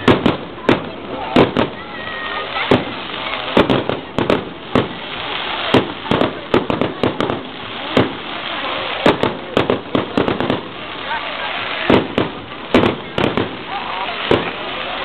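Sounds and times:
firework shells bursting: 0:11.7 - 0:14.9.

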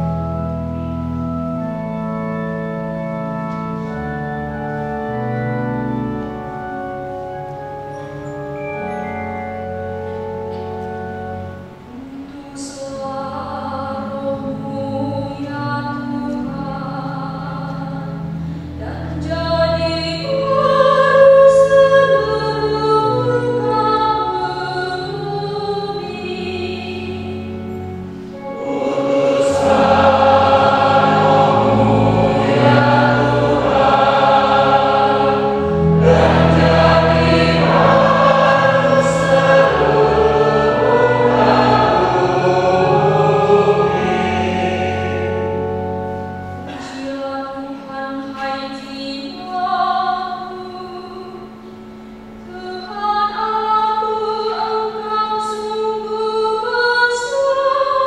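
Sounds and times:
organ playing chords: 0:00.0 - 0:58.0
people singing psalm refrain: 0:28.3 - 0:45.8.

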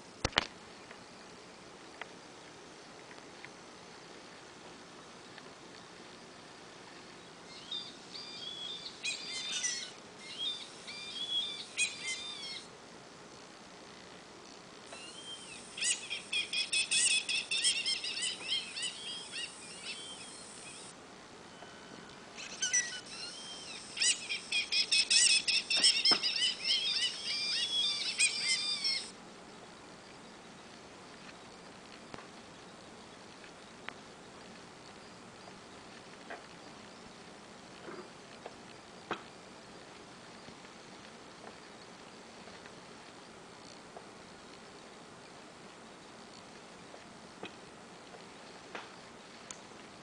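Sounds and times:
quiet hiss: 0:00.0 - 0:50.0
recorded bird chirps from small speaker: 0:07.5 - 0:12.7, 0:15.0 - 0:20.9, 0:21.5 - 0:29.1.

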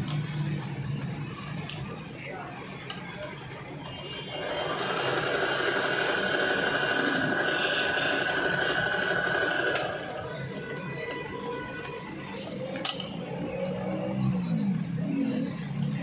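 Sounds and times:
electric sewing machine running: 0:04.3 - 0:10.3.

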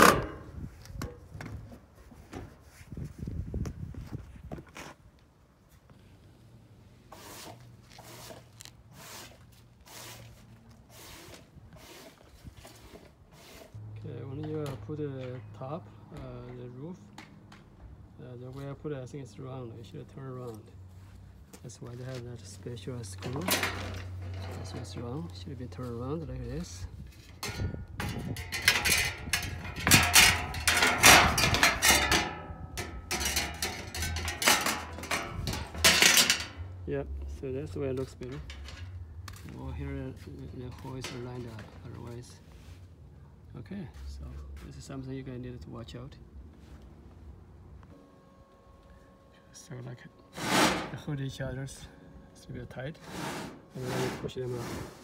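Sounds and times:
metal panels clanking and rattling: 0:00.0 - 0:01.2, 0:23.2 - 0:25.0, 0:27.2 - 0:36.8, 0:38.2 - 0:39.0
faint scuffing and rustling: 0:00.6 - 0:06.2, 0:38.8 - 0:43.1, 0:43.8 - 0:45.0
low steady hum: 0:18.1 - 0:54.4.

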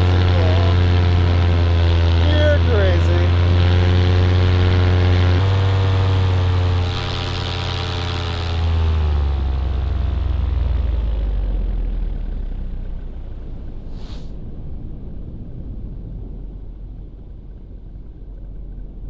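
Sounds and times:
paramotor engine drone: 0:00.0 - 0:19.0
short rush of noise: 0:13.8 - 0:14.4
wind rush: 0:13.8 - 0:18.0.

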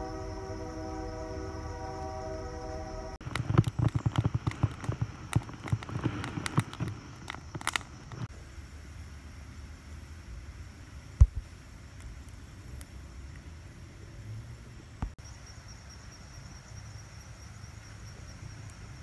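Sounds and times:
campfire crackling and popping: 0:03.2 - 0:08.3.

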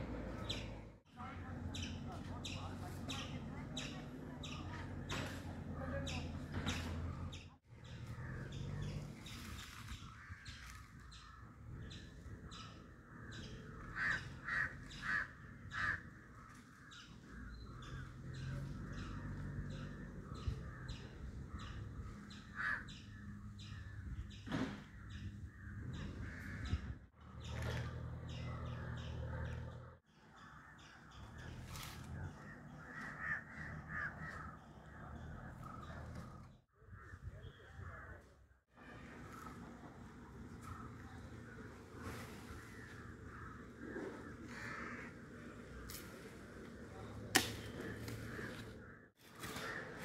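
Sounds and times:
crows cawing: 0:13.3 - 0:18.0, 0:22.4 - 0:23.2, 0:32.4 - 0:34.7, 0:42.6 - 0:45.8.

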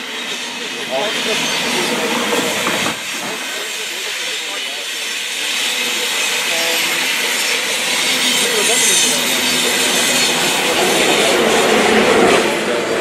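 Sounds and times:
high-speed train passing: 0:00.0 - 0:13.0.

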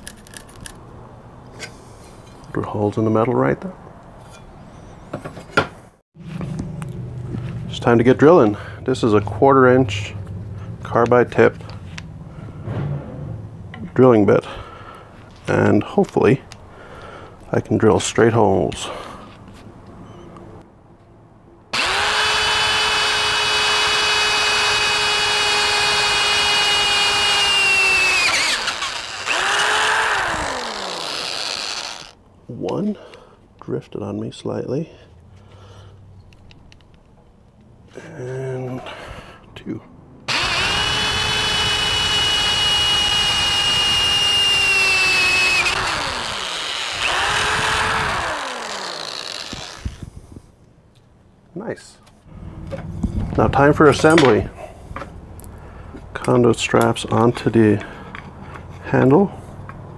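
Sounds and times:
electric drill drilling steel: 0:21.8 - 0:32.2, 0:40.3 - 0:50.0.

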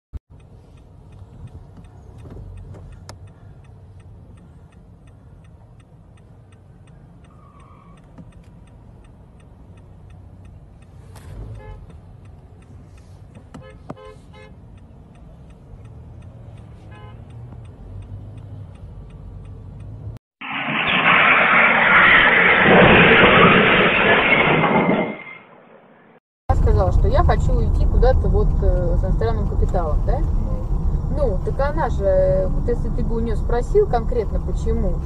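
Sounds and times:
road and engine rumble inside car: 0:00.3 - 0:20.2, 0:26.5 - 0:35.0
car horn toots: 0:13.6 - 0:14.6, 0:16.9 - 0:17.4.

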